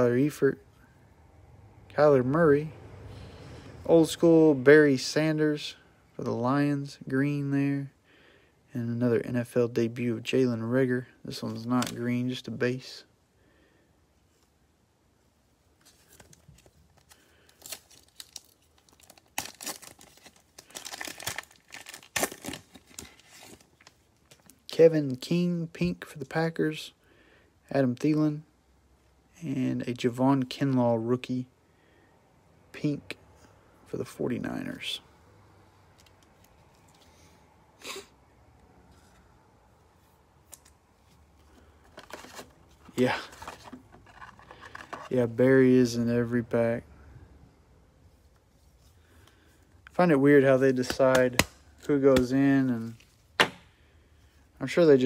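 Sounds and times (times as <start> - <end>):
foil wrapper crinkling: 16.1 - 24.6, 41.9 - 45.1
wrapper being torn open: 17.0 - 24.5
card sliding into plastic sleeve: 41.8 - 45.1.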